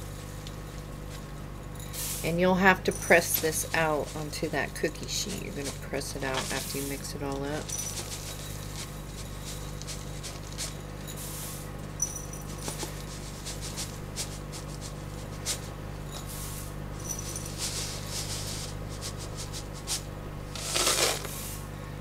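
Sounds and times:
low electrical hum: 0.0 - 22.0
oats pattering into a bowl: 20.6 - 21.5.

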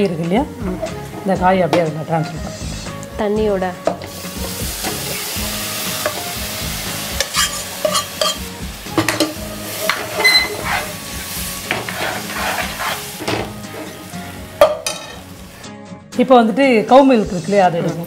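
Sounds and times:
oil sizzling: 0.0 - 15.8
ladle scraping and knocking pan: 7.2 - 15.3.

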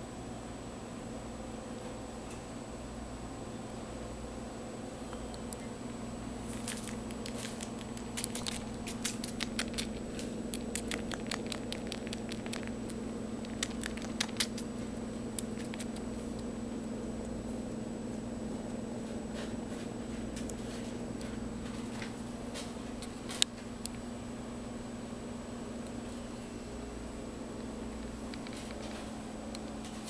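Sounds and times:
cat purring: 6.5 - 14.8
kitten suckling wet clicks: 6.5 - 16.5, 28.3 - 28.8.

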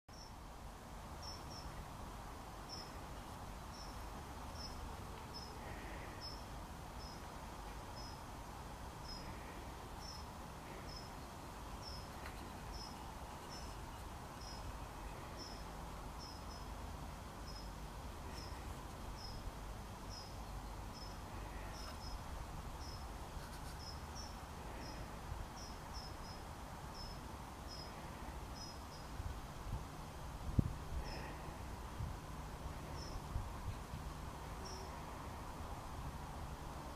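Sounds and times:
cricket chirping: 0.1 - 0.3, 1.2 - 1.7, 2.7 - 2.9, 3.7 - 4.0, 6.2 - 6.4, 7.0 - 7.2, 8.0 - 8.2, 10.0 - 10.3, 11.8 - 14.7, 15.4 - 16.7, 17.5 - 18.6, 20.1 - 22.2, 22.8 - 25.0, 25.6 - 27.9, 33.0 - 33.2, 34.6 - 34.9
steady background noise: 0.1 - 36.9.

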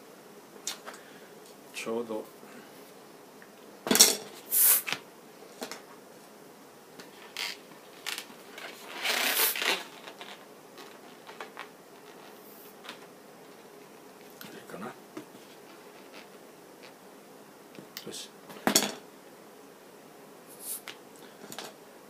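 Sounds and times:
balloon rubbing against hands: 8.6 - 11.4, 15.4 - 17.0, 20.5 - 20.9.

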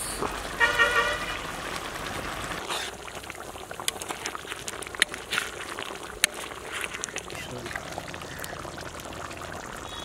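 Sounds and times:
curry bubbling in a wok: 0.1 - 10.0
metal ladle stirring: 3.8 - 7.8.

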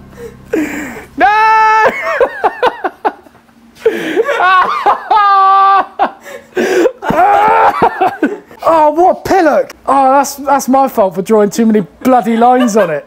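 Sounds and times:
man groaning: 0.5 - 2.1
man laughing: 0.6 - 8.6, 12.0 - 13.0.

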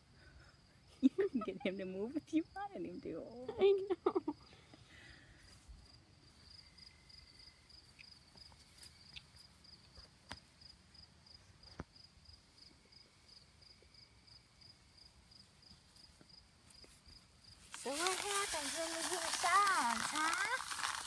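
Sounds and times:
cricket chirping: 0.0 - 21.0.

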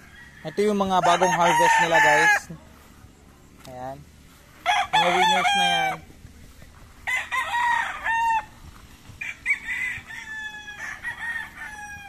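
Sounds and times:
rooster crowing: 0.0 - 2.6, 4.6 - 6.1, 7.0 - 12.0.

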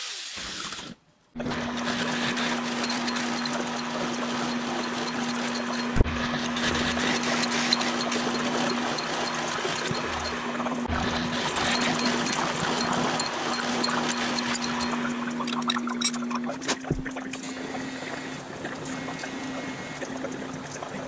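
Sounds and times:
drill cutting metal plate: 0.0 - 15.8
motor hum: 1.4 - 21.0.

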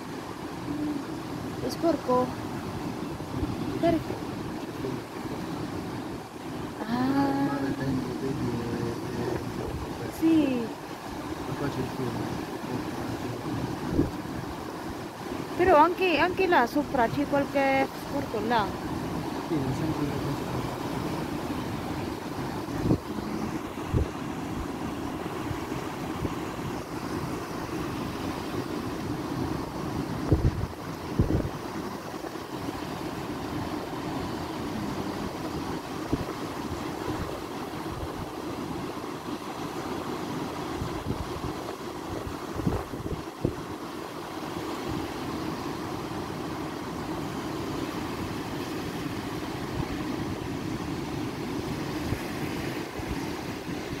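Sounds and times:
sea surging over shore: 0.0 - 54.0
wind: 0.0 - 54.0
wind thumping on microphone: 9.0 - 10.1, 12.6 - 15.6, 20.4 - 38.4, 40.7 - 43.9.

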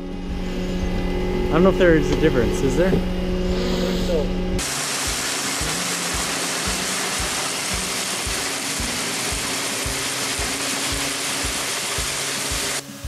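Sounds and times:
dry peas pouring into auger: 4.6 - 12.8
background music with a beat: 5.1 - 13.0.

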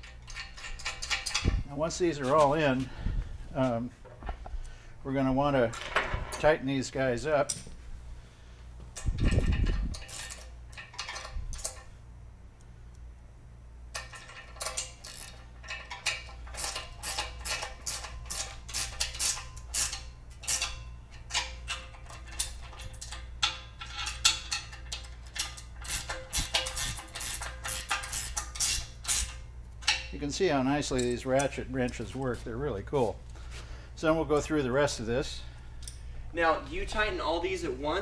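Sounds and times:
ratcheting wrench clicking: 9.0 - 11.9, 13.9 - 30.1.

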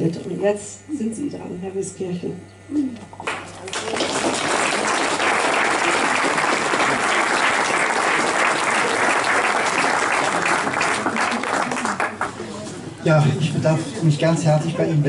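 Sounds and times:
audience applauding: 3.2 - 12.4.

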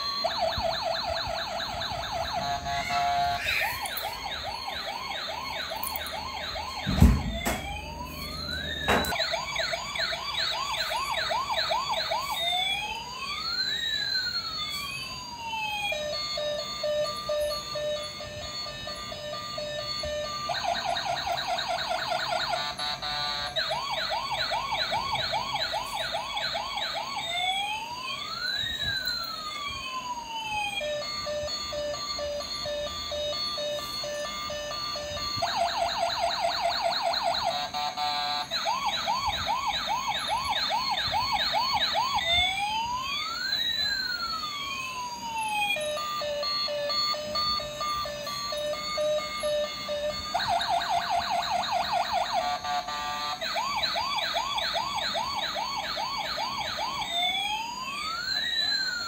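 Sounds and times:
toy police siren warbling and wailing: 0.0 - 59.0.

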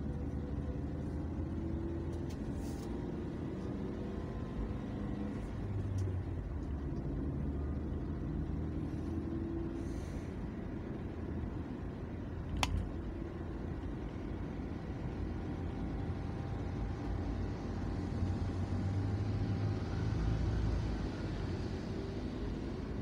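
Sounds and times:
car driving at road speed: 0.0 - 23.0
sharp click: 12.5 - 12.9.

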